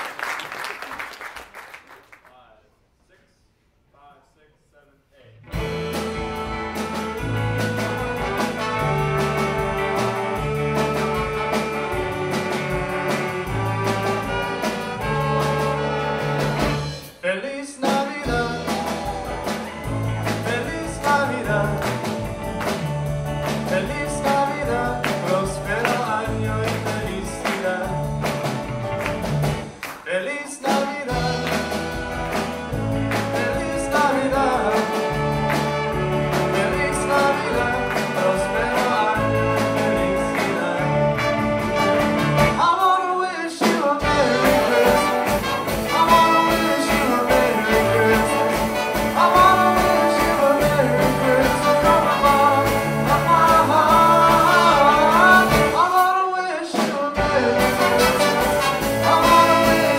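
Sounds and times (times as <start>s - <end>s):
upright bass line: 5.4s - 17.1s, 18.2s - 29.8s, 31.1s - 42.6s, 44.0s - 55.8s, 57.2s - 59.9s
rockabilly big band playing: 5.4s - 59.9s
man singing lead: 17.2s - 22.5s, 23.4s - 28.4s, 30.0s - 59.9s.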